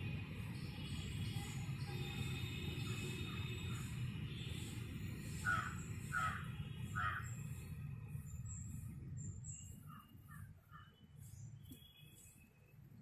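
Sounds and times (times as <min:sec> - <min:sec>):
crow cawing: 0:05.5 - 0:07.3.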